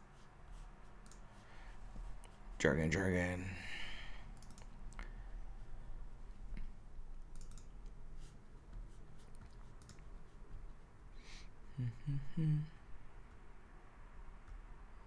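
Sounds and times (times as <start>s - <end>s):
mouse and keyboard clicks: 4.4s - 4.7s, 7.3s - 8.3s, 9.2s - 10.3s
low hum of a voice: 11.8s - 12.8s.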